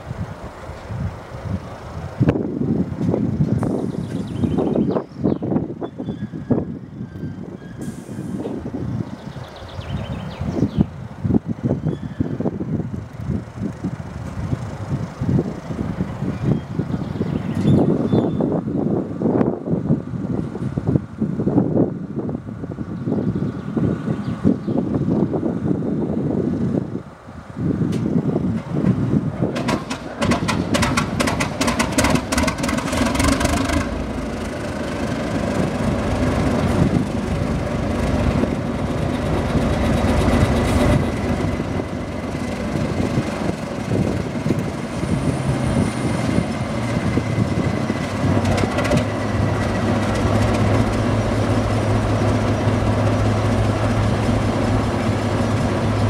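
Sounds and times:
diesel locomotive engine starting: 0.0 - 56.0
engine clattering as it cranks: 27.9 - 56.0.

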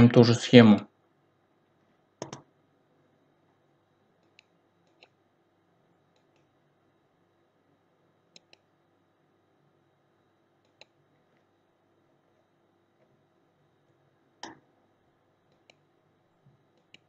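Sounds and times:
computer mouse clicks: 2.2 - 2.5, 4.2 - 5.2, 8.3 - 8.7, 10.6 - 11.0, 14.4 - 14.6, 15.5 - 15.8, 16.7 - 17.0.

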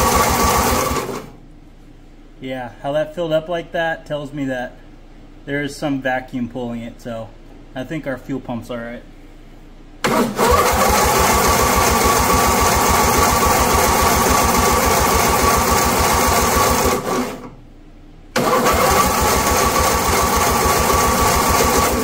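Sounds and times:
electric starter cranking engine: 0.0 - 1.3, 10.0 - 17.6, 18.4 - 22.0.

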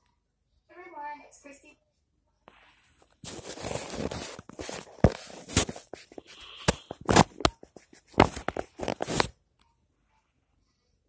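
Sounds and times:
rubbing on phone microphone: 2.4 - 9.3.

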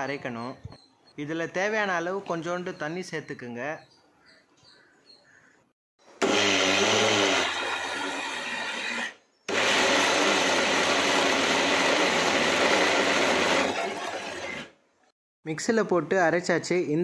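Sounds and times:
mixer grinder motor grinding: 6.2 - 14.8.

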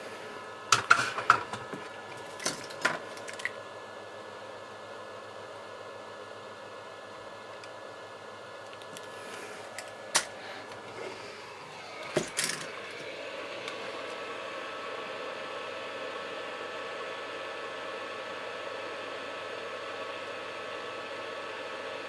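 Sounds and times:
hot-air gun hissing: 9.0 - 14.8.

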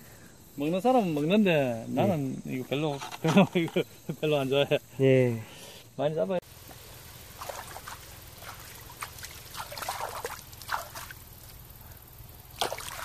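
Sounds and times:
hands splashing in water: 7.3 - 11.2, 12.5 - 13.0.

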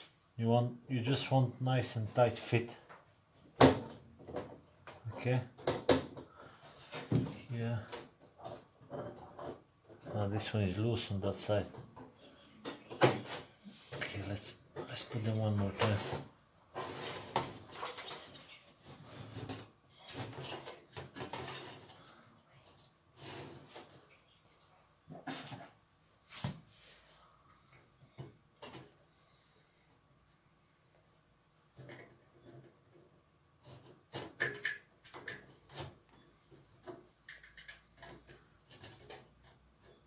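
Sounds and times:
metal clicks and rattles: 36.8 - 39.6.

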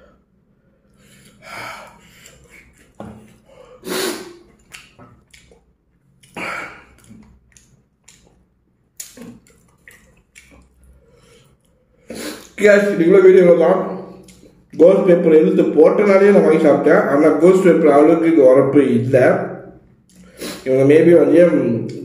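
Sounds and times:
man hissing breaths: 3.5 - 4.5
lip smacks and chewing: 4.5 - 11.7, 14.2 - 14.6.

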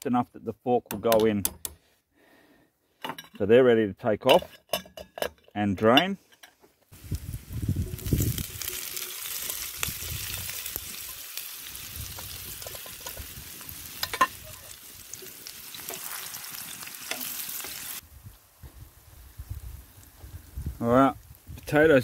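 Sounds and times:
potatoes sizzling in oil: 7.0 - 22.0.

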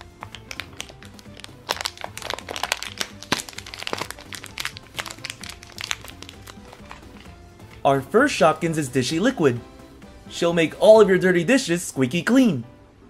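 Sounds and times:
plastic wrapper crinkling: 0.0 - 7.3
background music: 0.0 - 13.0.

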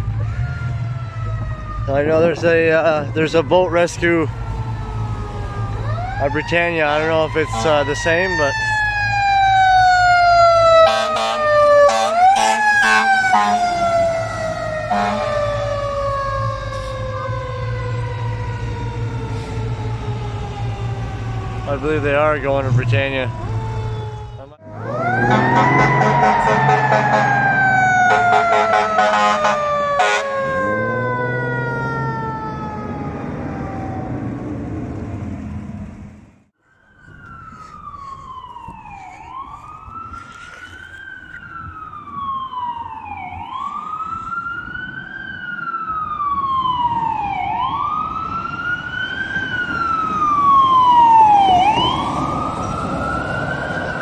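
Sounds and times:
wail siren rising and falling: 0.0 - 35.8, 36.6 - 54.0
fire truck siren winding down: 0.0 - 54.0
air horn blasts: 7.5 - 7.9, 10.8 - 13.6, 14.9 - 15.4, 25.2 - 27.4, 28.0 - 30.3.

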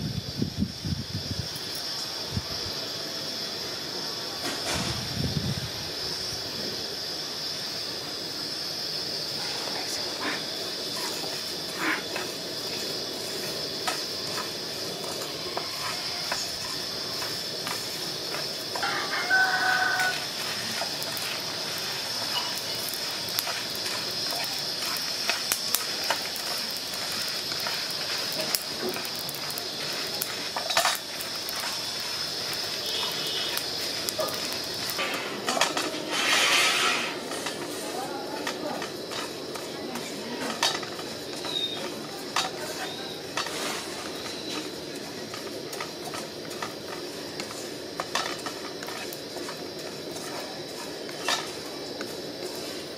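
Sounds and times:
gas stove hiss: 0.0 - 52.9
wooden spatula scraping seeds in pan: 9.7 - 52.9
wooden spatula scraping pan: 34.2 - 37.8, 45.4 - 51.6.

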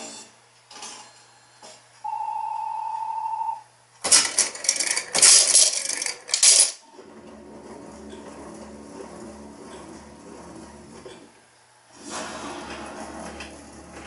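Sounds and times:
coins clattering into metal tray: 4.1 - 6.8.

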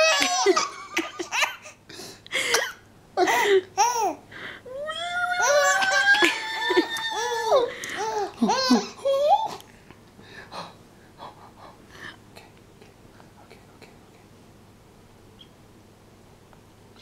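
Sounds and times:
baby laughing: 0.0 - 1.8, 2.5 - 4.2, 5.3 - 9.6.

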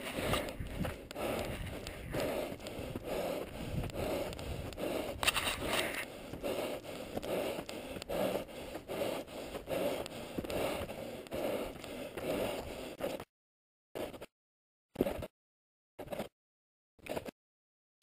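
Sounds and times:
footsteps on dirt trail: 0.0 - 13.2
runner breathing hard: 0.0 - 13.3.

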